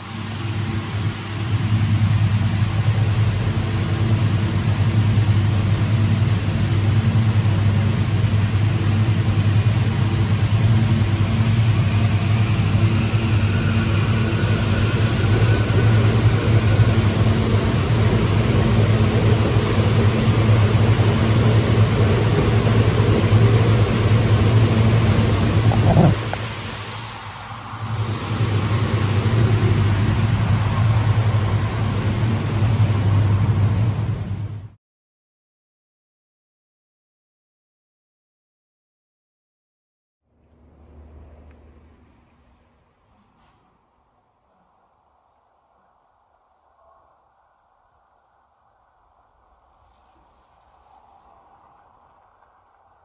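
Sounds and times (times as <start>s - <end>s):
electric train humming: 0.0s - 34.8s
faint high whine: 0.0s - 34.8s.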